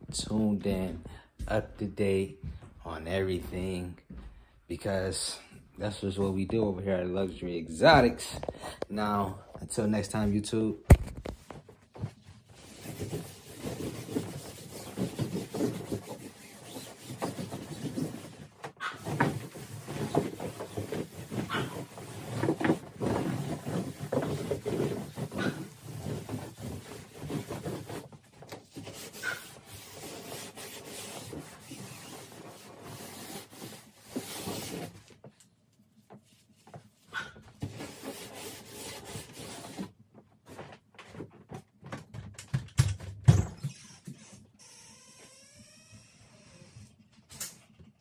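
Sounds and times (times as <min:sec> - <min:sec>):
footsteps knocking and thumping: 0:00.0 - 0:04.5, 0:40.8 - 0:43.7
scraping on plastic pool floor: 0:11.0 - 0:35.4.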